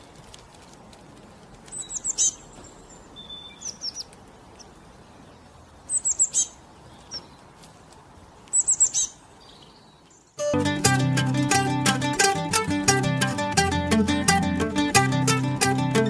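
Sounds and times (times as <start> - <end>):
songbird calls: 1.7 - 7.5, 8.5 - 10.4.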